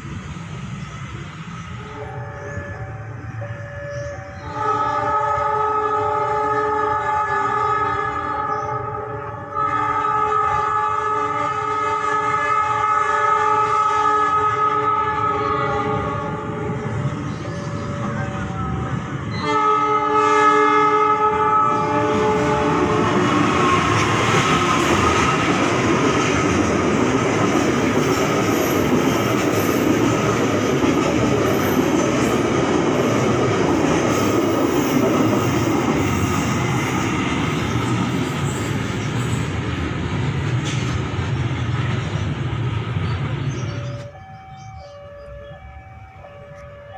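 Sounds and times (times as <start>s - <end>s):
train wheels rumbling on rails: 0.0s - 46.9s
locomotive horn chord: 1.9s - 16.9s, 18.0s - 23.9s.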